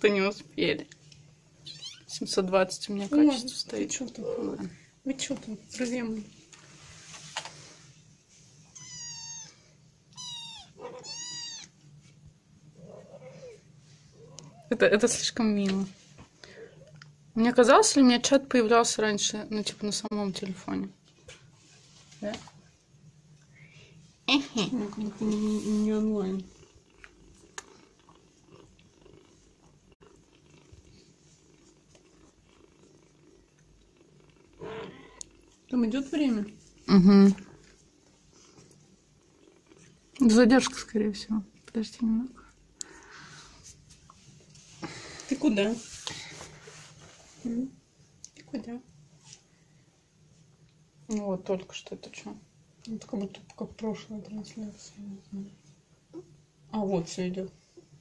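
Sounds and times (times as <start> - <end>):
faint cat purring: 0.2 - 9.8, 10.4 - 18.0, 23.3 - 50.4
kitten meowing: 1.6 - 2.1, 8.8 - 11.7.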